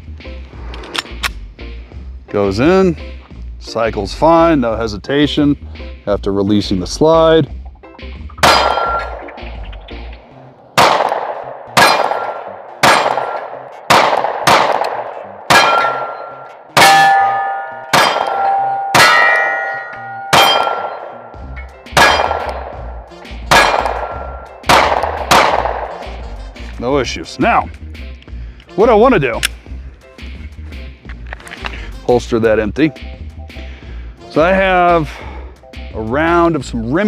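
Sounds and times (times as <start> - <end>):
pistol shots: 8.4 - 9.4, 10.8 - 26.2
short metallic ring: 15.6 - 22.4.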